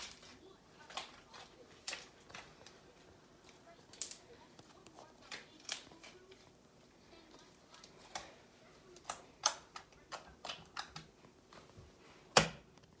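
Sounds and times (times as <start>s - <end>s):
slime clicking and popping: 9.0s - 11.1s.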